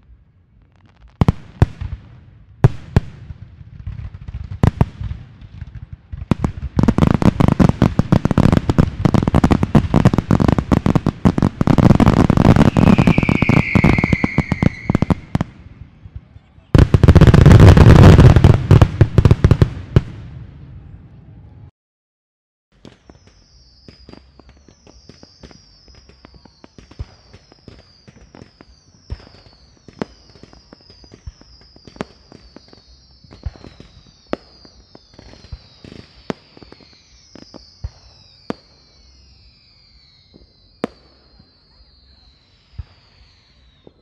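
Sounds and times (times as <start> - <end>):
firework bangs and pops: 0.6 - 20.4, 22.8 - 44.0
firework whistles falling in pitch: 8.4 - 15.5, 22.8 - 44.0.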